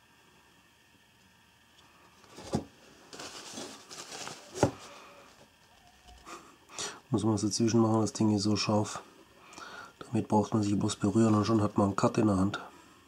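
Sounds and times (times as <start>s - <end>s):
paper tissue rustling: 2.2s - 5.9s.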